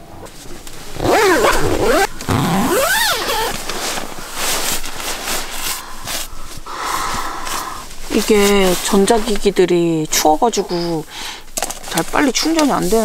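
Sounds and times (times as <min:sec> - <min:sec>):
sleeping bag rustling: 0:00.1 - 0:09.8.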